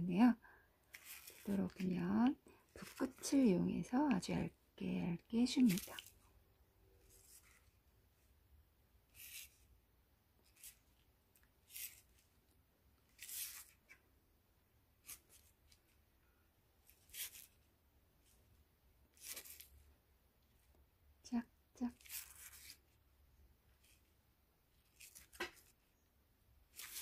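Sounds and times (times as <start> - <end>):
brush scratching on paper: 9.1 - 9.7, 11.6 - 12.2, 21.9 - 23.0.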